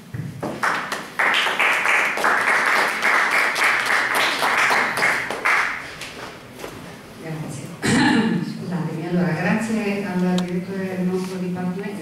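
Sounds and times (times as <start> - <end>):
audience applauding: 0.4 - 6.0.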